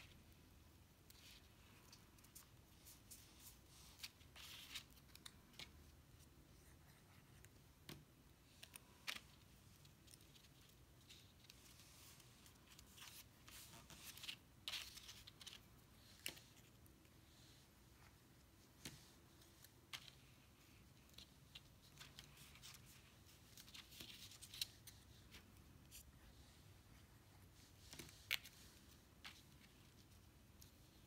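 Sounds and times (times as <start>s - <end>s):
card stock crinkling being folded: 1.1s - 7.5s, 8.4s - 17.6s.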